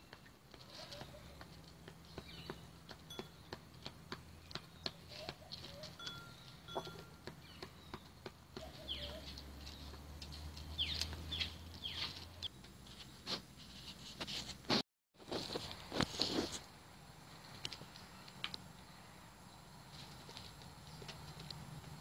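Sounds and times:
birds pecking on hard ground: 0:00.0 - 0:14.5, 0:15.2 - 0:22.0
short high chirping calls: 0:08.6 - 0:09.5.

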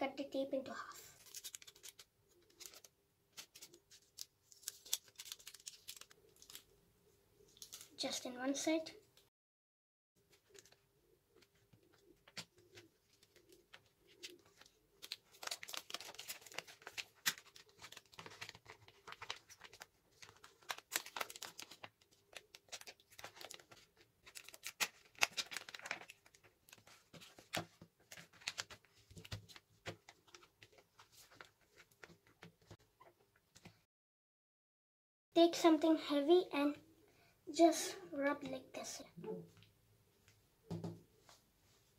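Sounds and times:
paper crinkling and rustling: 0:01.0 - 0:06.7, 0:07.5 - 0:08.0, 0:10.3 - 0:32.8.

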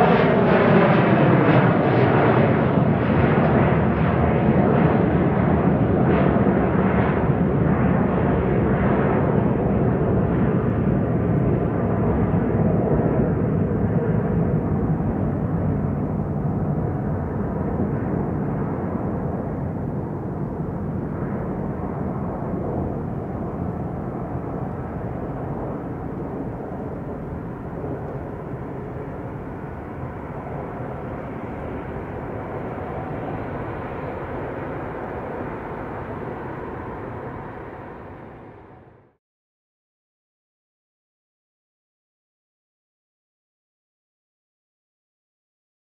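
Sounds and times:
jet engines in reverse thrust: 0:00.0 - 0:39.2.

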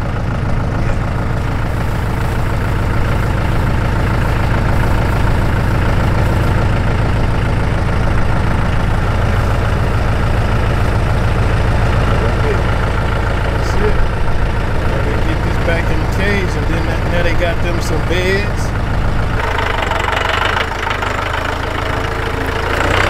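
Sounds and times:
engine idling: 0:00.0 - 0:23.0.

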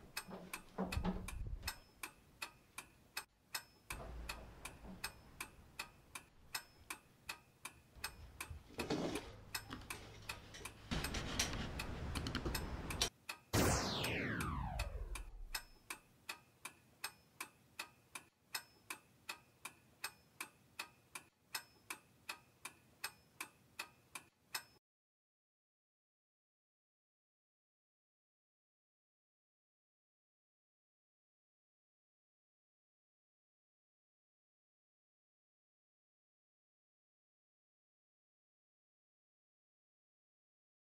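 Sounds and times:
clock ticking: 0:00.0 - 0:24.8
rushing noise: 0:10.9 - 0:15.6
loud whoosh falling in pitch: 0:13.6 - 0:15.6.

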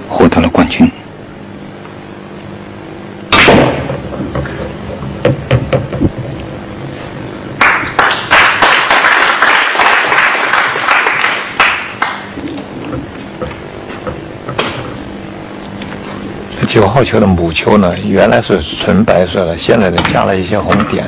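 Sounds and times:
pool balls knocking: 0:03.8 - 0:06.1
audience clapping: 0:07.6 - 0:12.6.

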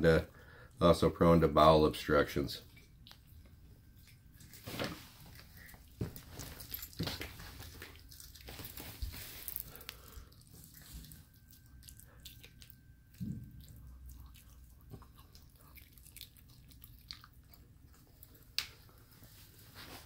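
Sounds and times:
puppy chewing bone: 0:02.6 - 0:04.6, 0:07.0 - 0:09.1, 0:09.9 - 0:19.0.

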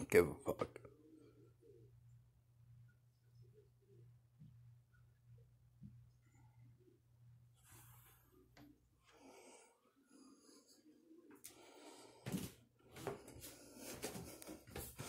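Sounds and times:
faint breathing: 0:07.6 - 0:15.0.

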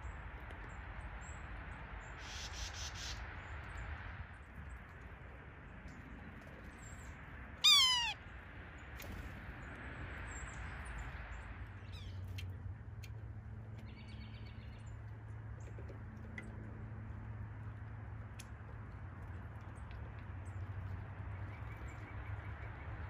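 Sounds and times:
small bird chips: 0:05.8 - 0:08.2
bird mewing call: 0:07.6 - 0:08.2
quick bird notes: 0:07.6 - 0:08.2.

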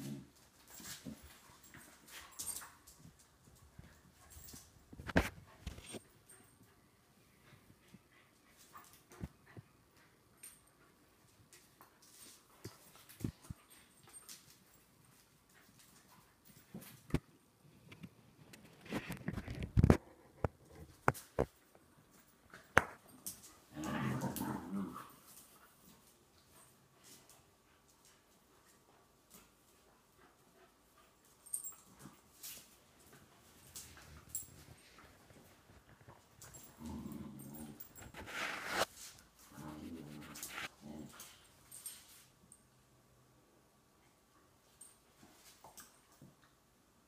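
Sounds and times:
dogs play growling: 0:00.0 - 0:03.0, 0:22.5 - 0:28.1, 0:28.7 - 0:42.0
dogs snarling and scuffling: 0:00.0 - 0:06.7, 0:07.5 - 0:17.2, 0:17.9 - 0:42.3.

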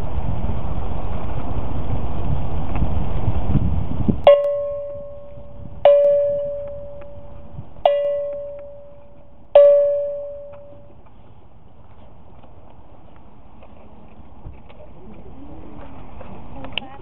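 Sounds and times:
wind rumble on microphone: 0:00.0 - 0:17.0
small bell ringing: 0:04.3 - 0:11.0.

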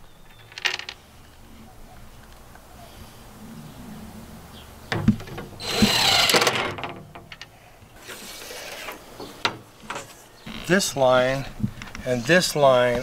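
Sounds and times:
cordless drill driving screw: 0:05.6 - 0:06.6.

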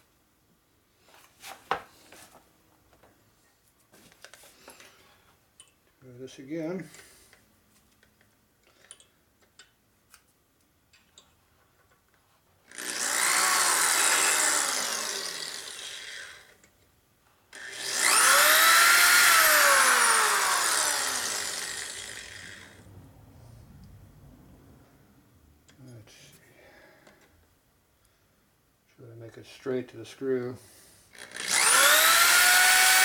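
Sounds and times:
electric drill whining: 0:12.7 - 0:16.6, 0:17.5 - 0:22.8, 0:31.2 - 0:33.0.

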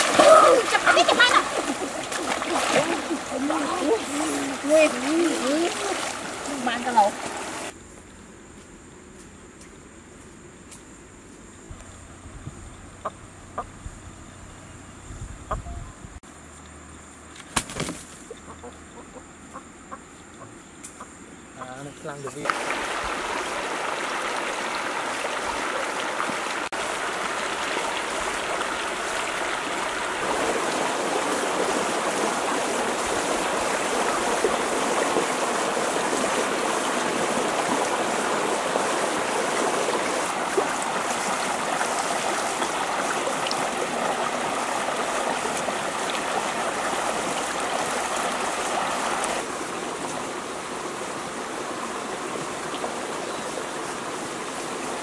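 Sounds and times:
river rushing over rocks: 0:00.0 - 0:07.7, 0:22.4 - 0:53.3.

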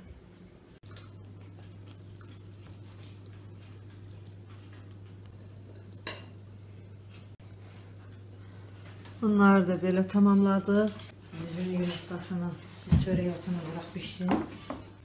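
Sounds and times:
utensils and dishes clinking: 0:10.1 - 0:11.2.

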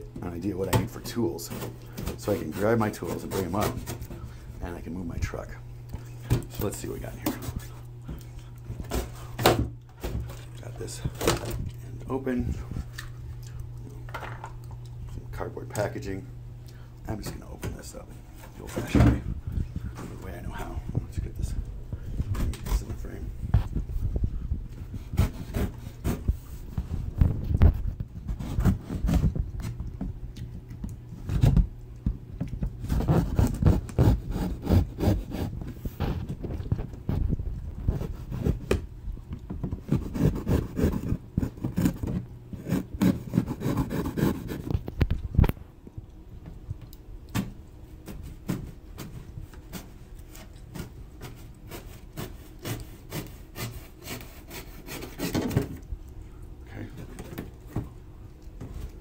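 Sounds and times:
knife cutting cardboard: 0:25.0 - 0:26.3, 0:32.8 - 0:36.2, 0:39.8 - 0:44.8, 0:48.2 - 0:55.8.

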